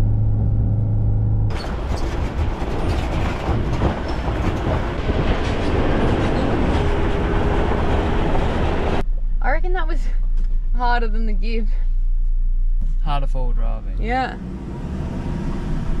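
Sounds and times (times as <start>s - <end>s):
engine droning inside cabin: 0.0s - 1.6s.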